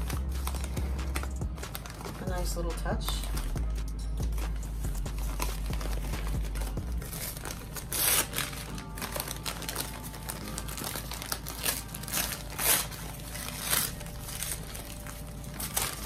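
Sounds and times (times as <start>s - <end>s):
packing paper crinkling: 0.0s - 3.6s, 4.3s - 16.0s.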